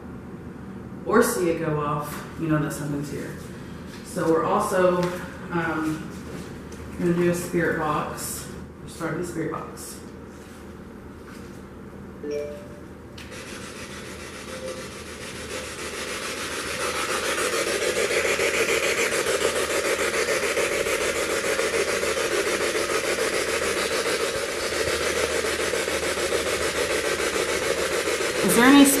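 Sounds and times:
short tones: 12.2 - 13.0.

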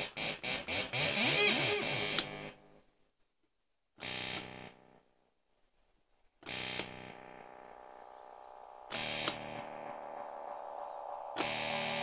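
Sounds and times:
electronic synth tones: 7.0 - 12.0.

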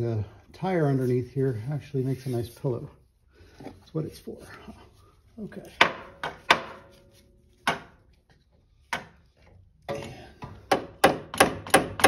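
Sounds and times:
hammer striking metal punch: 9.9 - 12.0.

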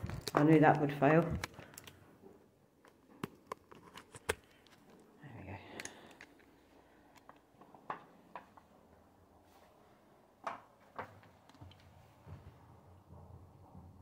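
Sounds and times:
soft rustle: 9.4 - 10.2
faint clicks and taps: 10.4 - 12.4.

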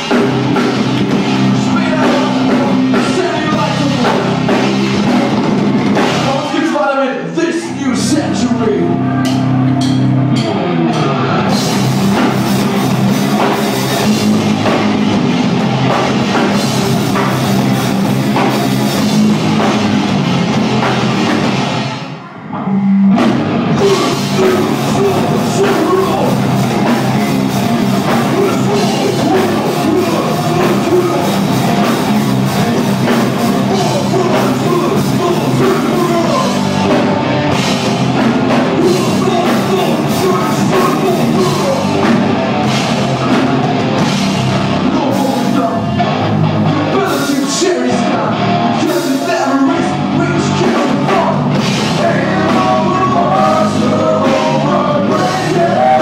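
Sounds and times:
rock band playing live: 0.0 - 56.0
person singing into microphone: 23.8 - 27.0, 28.0 - 32.0, 32.8 - 37.0, 38.7 - 42.1, 46.7 - 56.0.

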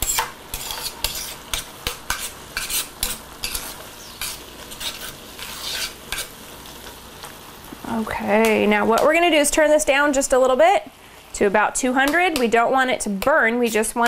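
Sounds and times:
metal tongs scraping a pan: 0.0 - 6.4
spinach sizzling: 0.0 - 14.0.

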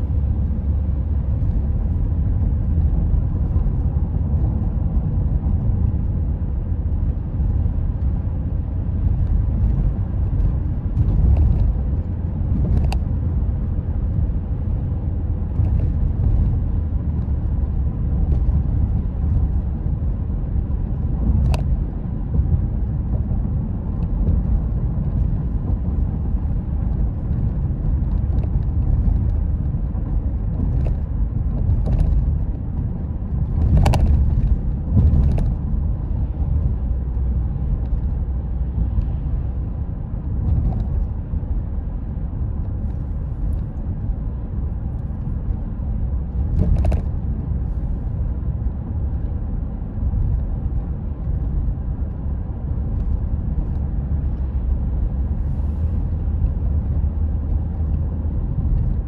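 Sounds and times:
car driving on paved road: 0.0 - 59.0.

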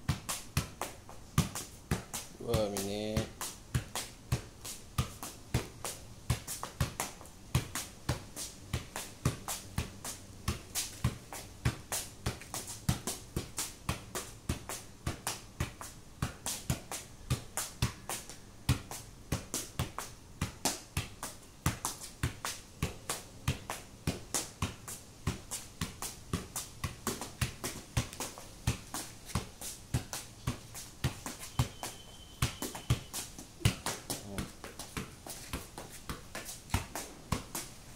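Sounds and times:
football thumps on foot: 21.7 - 37.6.

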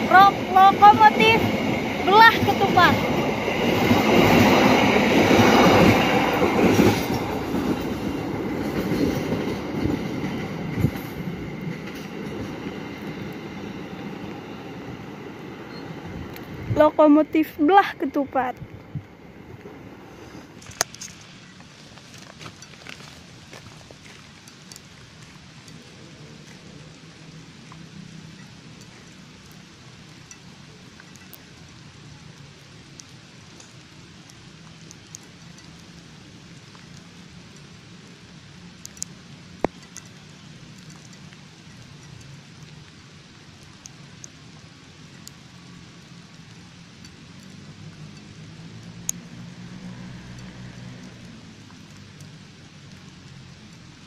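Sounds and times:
train wheels on rails: 0.0 - 26.8, 44.6 - 52.2
faint ticks: 20.6 - 54.0.

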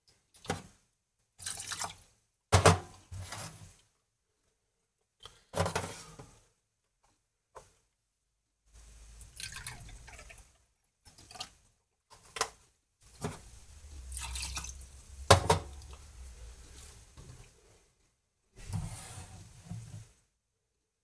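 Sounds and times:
liquid pouring into glass: 9.2 - 10.4, 13.9 - 16.0.

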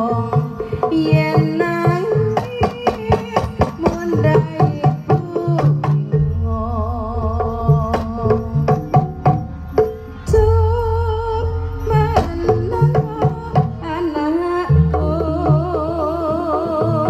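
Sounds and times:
hand-drum strokes: 0.0 - 17.0
heavy low drum stroke: 0.0 - 17.0
sustained low tone: 6.0 - 16.3.

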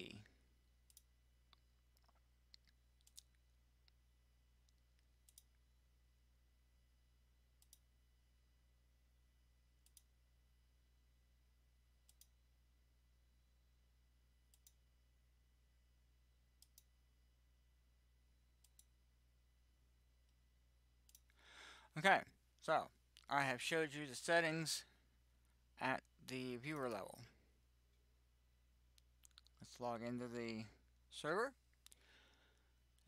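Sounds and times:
low steady hum: 0.0 - 33.0
computer mouse clicks: 0.8 - 4.0, 4.6 - 5.6, 7.6 - 7.9, 9.8 - 10.2, 12.0 - 12.4, 14.5 - 14.8, 16.6 - 16.9, 18.6 - 19.0, 21.0 - 21.4.

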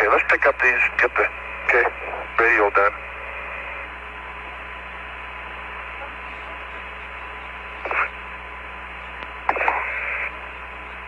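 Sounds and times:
radio channel hiss and hum: 0.0 - 11.0
short radio burst: 6.0 - 8.5, 9.4 - 10.5.

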